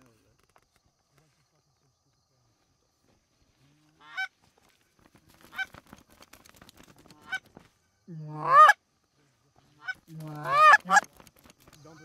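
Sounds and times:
goose honks: 0:08.4 - 0:08.8, 0:09.8 - 0:11.0.

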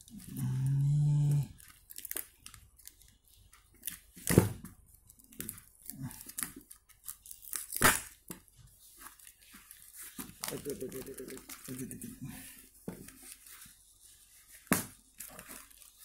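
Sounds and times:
packing tape ripping: 0:00.0 - 0:03.1, 0:03.7 - 0:08.3.

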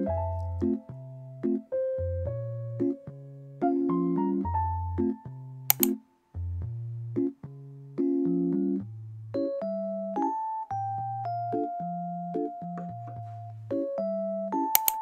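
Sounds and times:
gentle electric piano music: 0:00.0 - 0:15.0
short sharp click: 0:05.7 - 0:06.0, 0:14.8 - 0:15.0.

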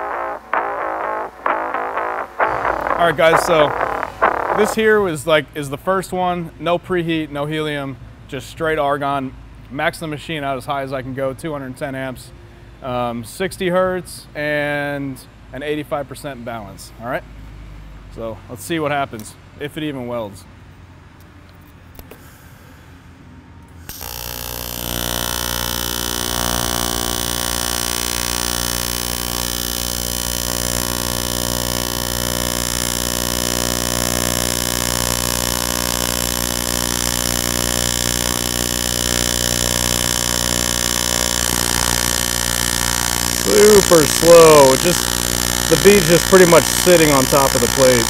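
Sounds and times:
welding arc buzzing hum: 0:00.0 - 0:05.0, 0:23.8 - 0:48.0.

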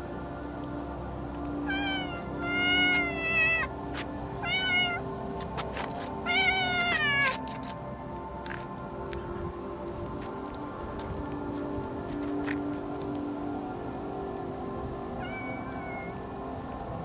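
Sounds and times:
cat meowing: 0:04.4 - 0:05.0.

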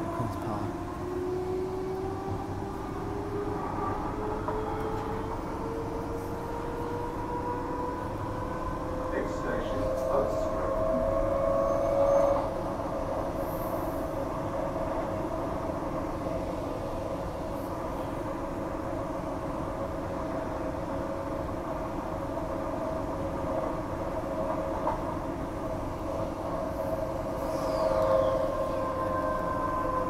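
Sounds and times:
train rumble with humming tone: 0:00.0 - 0:30.0.

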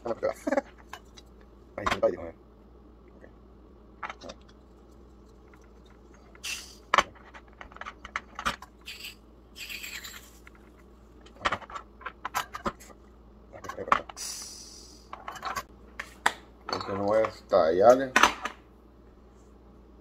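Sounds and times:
short gas hisses: 0:06.4 - 0:06.9, 0:14.2 - 0:15.1.

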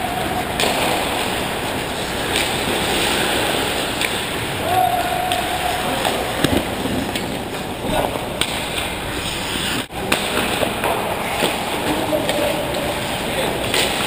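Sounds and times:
distant shouts: 0:04.6 - 0:06.4
skate blades scraping ice: 0:09.2 - 0:09.9.

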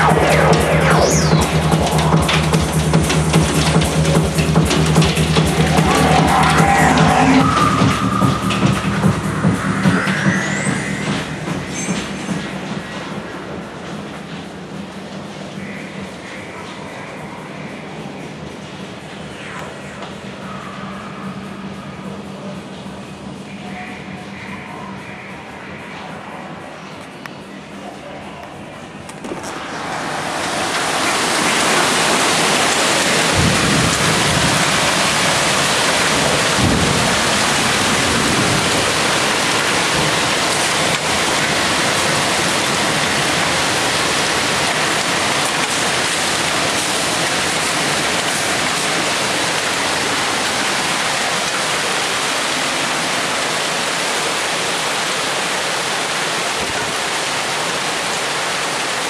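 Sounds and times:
hail and heavy rain: 0:00.0 - 0:10.6, 0:29.2 - 0:59.0
deep low rumbles: 0:00.0 - 0:14.1.

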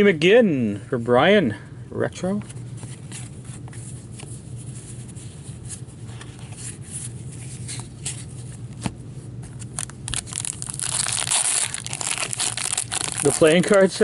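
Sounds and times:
low background hum: 0:00.0 - 0:14.0
trading cards clicking and rustling: 0:07.6 - 0:14.0.

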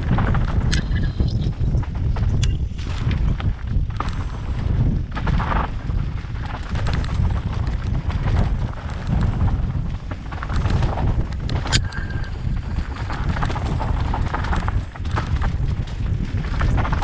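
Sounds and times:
bike rattling: 0:00.0 - 0:17.0
wind buffeting microphone: 0:00.0 - 0:17.0
sharp click: 0:00.7 - 0:01.4, 0:02.3 - 0:02.6.

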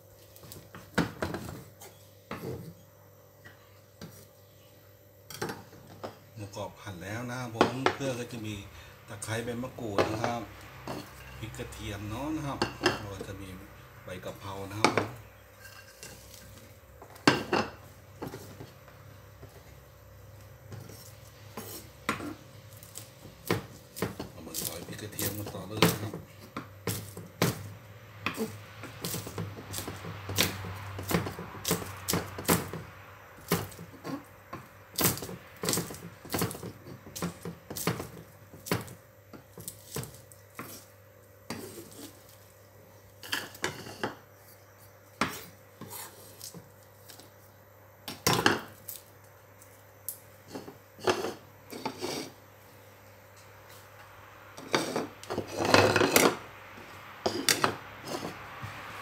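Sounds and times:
knife chopping on wooden board: 0:20.7 - 0:40.9.

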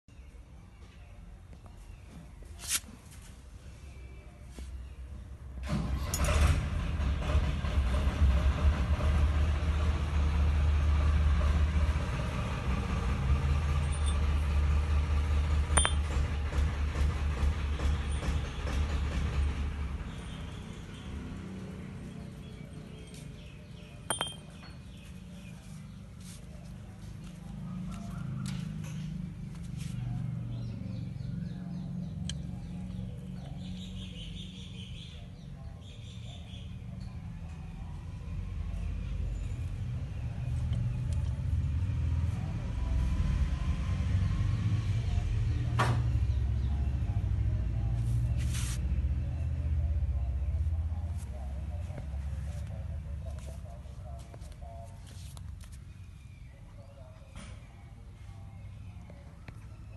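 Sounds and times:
engine rumbling: 0:01.3 - 0:59.9
small birds chirping: 0:20.0 - 0:37.2, 0:44.8 - 0:59.9.

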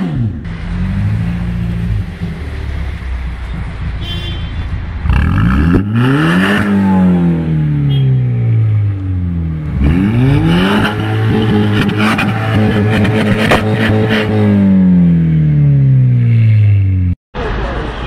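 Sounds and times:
car engine revving: 0:05.0 - 0:17.2.

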